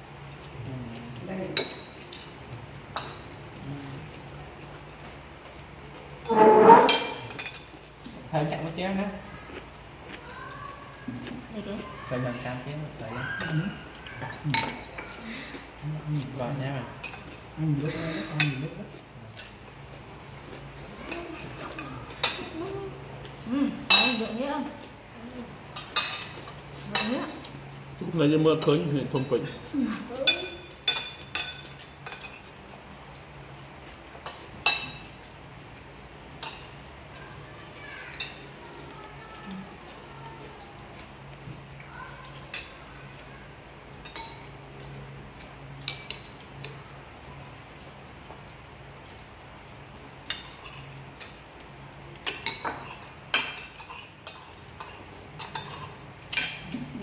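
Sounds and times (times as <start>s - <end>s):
cutlery clinking on plates: 6.2s - 7.8s, 13.4s - 15.2s, 28.5s - 32.6s, 34.2s - 36.8s, 43.9s - 46.8s, 50.2s - 51.4s, 52.2s - 57.0s.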